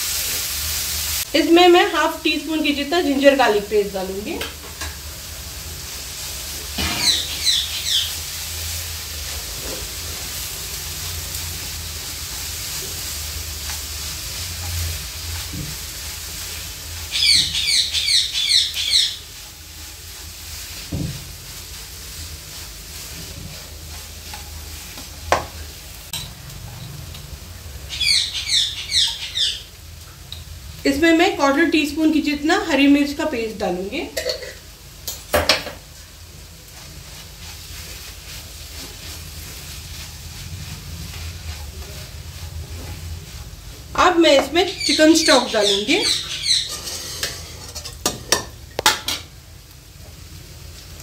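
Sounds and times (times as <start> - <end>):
vegetables sizzling in a pan: 0.0 - 51.0
high chirps: 6.9 - 8.2, 27.9 - 29.7, 44.5 - 46.8
spatula tapping pan: 23.9 - 25.6, 47.2 - 49.3.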